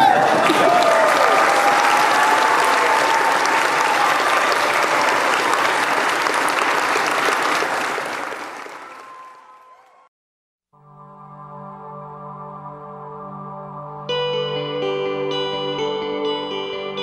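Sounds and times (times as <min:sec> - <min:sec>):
crowd applauding: 0:00.0 - 0:10.1.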